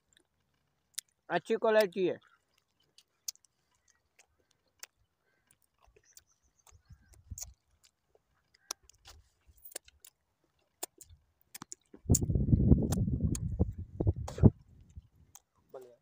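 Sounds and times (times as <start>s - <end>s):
sticky fingers and mouth clicking: 0.9s - 15.5s
soft low thumps: 12.0s - 15.1s.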